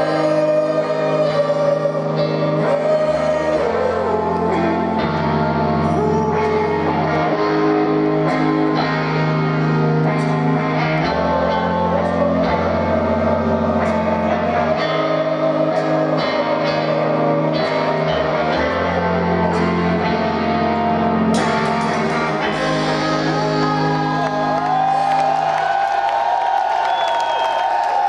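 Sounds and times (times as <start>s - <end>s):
live rock band playing: 0.0s - 25.9s
crowd shouting: 23.5s - 28.0s.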